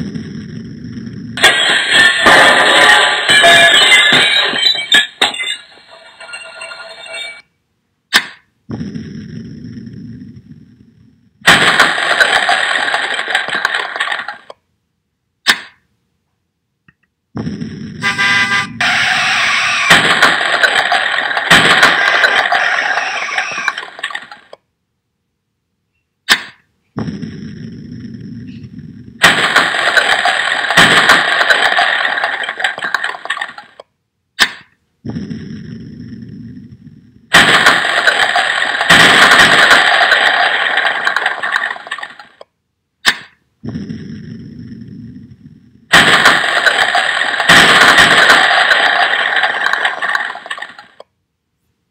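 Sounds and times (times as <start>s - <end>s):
loud crashing and breaking: 1.4s - 5.4s, 11.4s - 14.5s, 18.8s - 24.5s, 29.2s - 33.6s, 37.3s - 42.3s, 45.9s - 51.0s.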